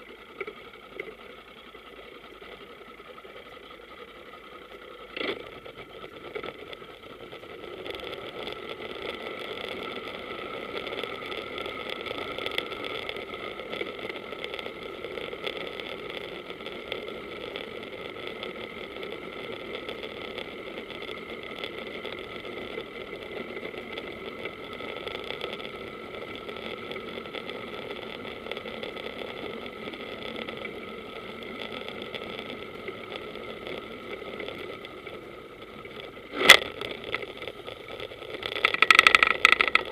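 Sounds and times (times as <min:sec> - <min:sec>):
boat engine idling: 0:37.2 - 0:39.9.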